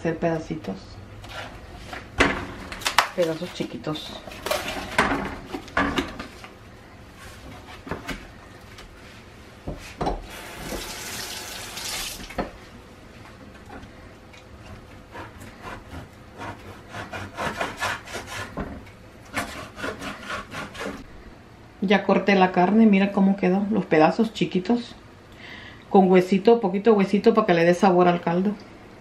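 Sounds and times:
tap running into a sink: 10.6s - 12.5s.

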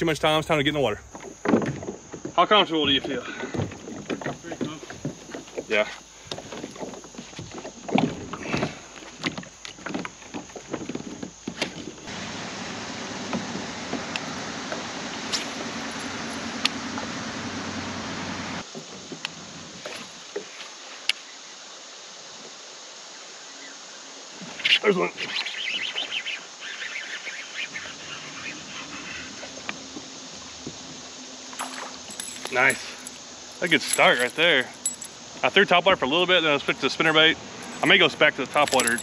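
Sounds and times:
kayak hull knocking and scraping: 1.0s - 12.2s, 18.6s - 20.6s
water rushing: 11.3s - 18.8s, 24.0s - 39.0s.

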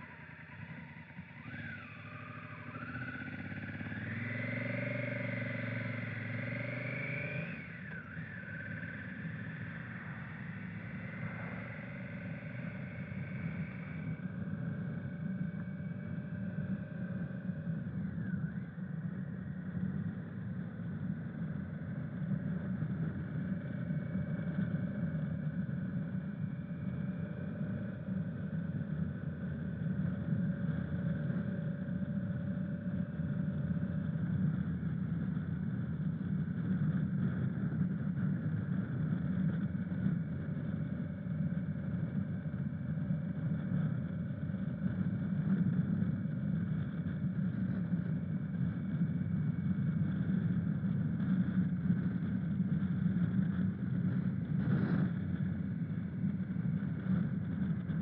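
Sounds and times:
motorcycle engine running: 0.0s - 58.0s
low even rush of noise: 8.0s - 33.4s.

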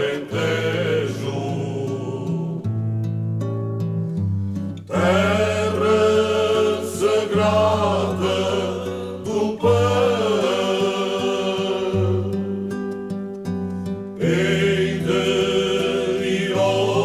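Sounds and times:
person singing: 0.0s - 2.6s, 4.9s - 12.6s, 14.2s - 17.0s.

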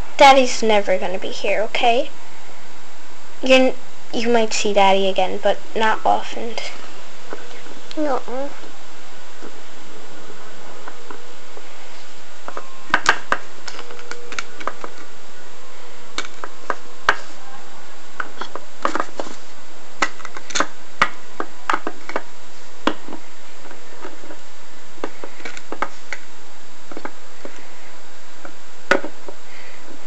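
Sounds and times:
steady hiss: 0.0s - 30.0s.

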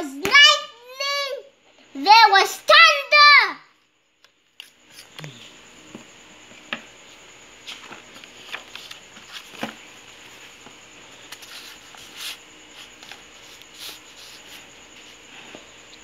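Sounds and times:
page turning: 7.6s - 9.8s.

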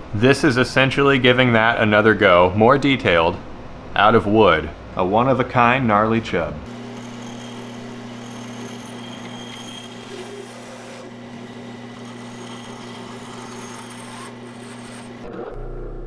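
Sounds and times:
bandsaw motor hum: 6.6s - 15.5s
bandsaw blade cutting wood: 6.7s - 15.3s.

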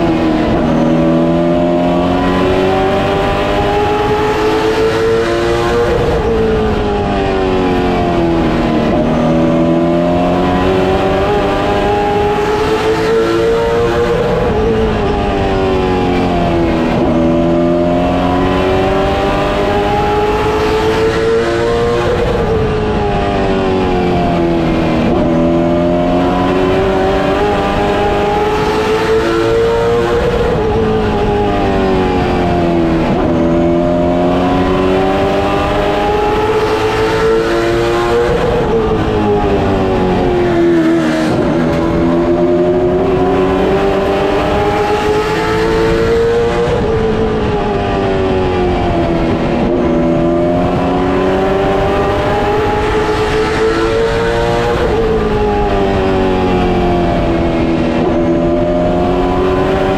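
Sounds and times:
racing car engine: 0.0s - 59.9s
road and chassis noise: 0.0s - 59.9s.

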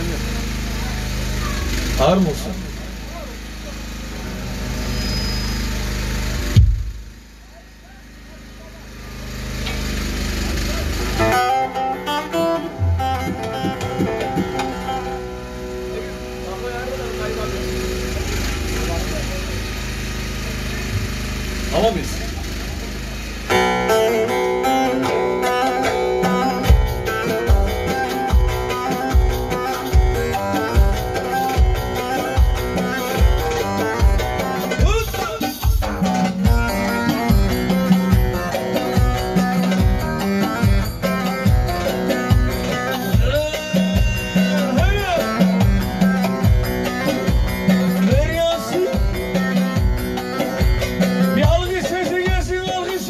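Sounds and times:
keyboard: 0.0s - 53.0s
deep drum beat: 6.4s - 7.1s, 12.8s - 15.0s, 26.7s - 52.9s
folk dance music through speakers: 9.3s - 53.0s
plucked lute: 11.0s - 15.9s
plucked lute melody: 11.0s - 16.2s, 23.5s - 35.0s.

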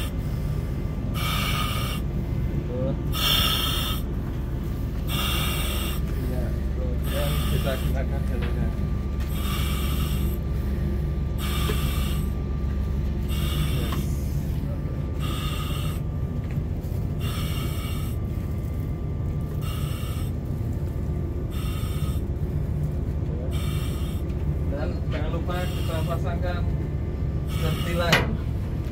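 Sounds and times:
breathing through a mask: 0.0s - 2.1s, 3.1s - 4.1s, 5.0s - 8.0s, 9.3s - 12.4s, 13.3s - 14.6s, 15.2s - 16.1s, 17.2s - 18.4s, 19.6s - 20.4s, 21.5s - 22.3s, 23.5s - 24.2s, 27.5s - 28.1s.

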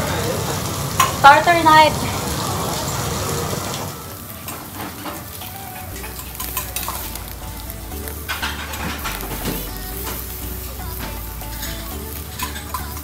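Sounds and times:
steak sizzling on a grill: 0.0s - 13.0s
metal tongs clicking on grate: 4.5s - 7.2s, 8.3s - 13.0s.

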